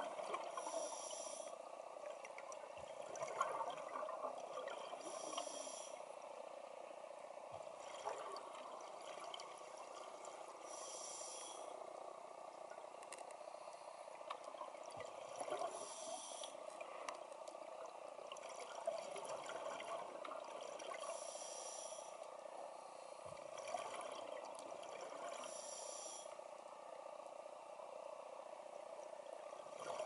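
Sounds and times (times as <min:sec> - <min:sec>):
muffled underwater hiss: 0:00.0 - 0:30.0
diver regulator breathing: 0:00.5 - 0:01.6, 0:05.0 - 0:06.1, 0:10.6 - 0:11.9, 0:15.6 - 0:16.6, 0:21.0 - 0:23.3, 0:25.4 - 0:26.4
underwater clicks: 0:12.9 - 0:13.4.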